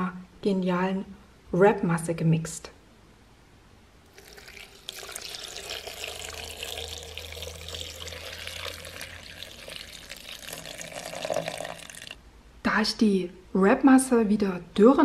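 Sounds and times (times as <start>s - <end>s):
water pouring into blender jar: 4.1s - 12.2s.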